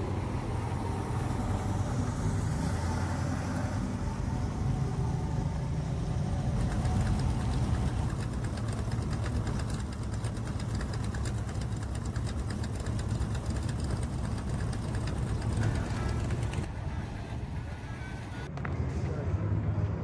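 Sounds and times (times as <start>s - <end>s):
car engine idling: 3.7s - 18.5s
fast even ticking: 6.4s - 16.7s.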